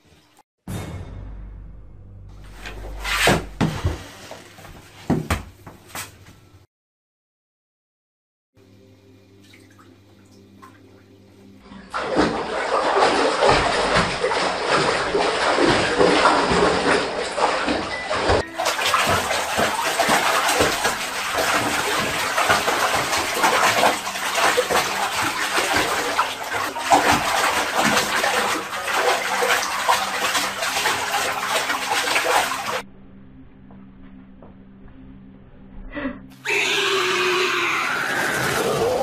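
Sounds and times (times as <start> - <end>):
water running into bathtub: 11.6 - 32.8.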